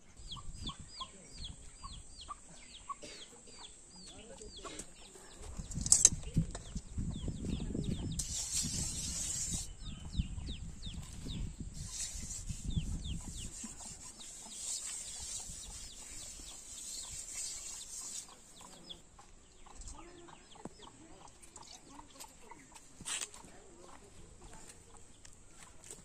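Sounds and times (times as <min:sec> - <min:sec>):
birds chirping: 0:00.0 - 0:26.0
straw scouring metal pot: 0:08.2 - 0:09.8, 0:11.2 - 0:18.9.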